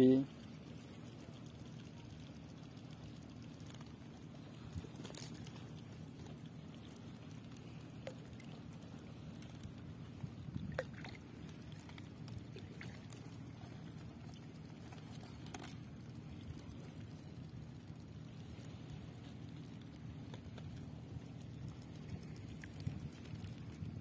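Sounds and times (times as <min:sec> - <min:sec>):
steady low hum: 0:00.0 - 0:24.0
small clicks and rustles: 0:00.3 - 0:24.0
water dripping: 0:00.9 - 0:18.3.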